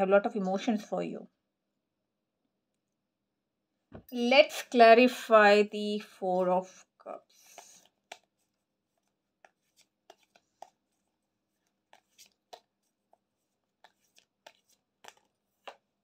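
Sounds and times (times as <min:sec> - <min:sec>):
cards being shuffled: 0:07.3 - 0:16.0.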